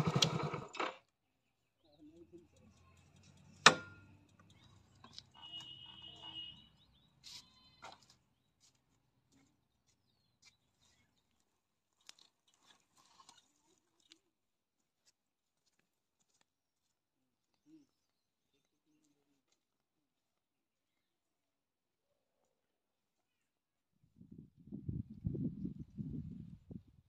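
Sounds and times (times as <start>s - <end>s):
motorcycle engine idling: 0.0s - 0.7s.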